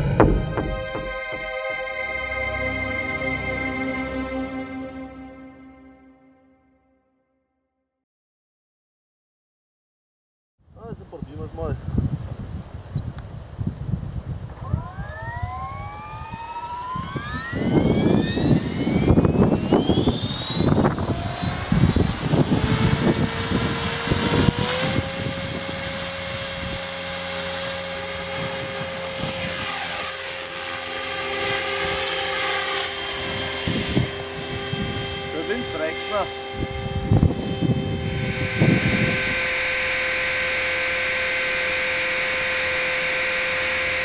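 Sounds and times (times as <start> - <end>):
rc helicopter motor and rotor whine: 0.0 - 3.7, 12.9 - 44.0
wind rumbling on microphone: 10.7 - 27.5, 32.9 - 39.8.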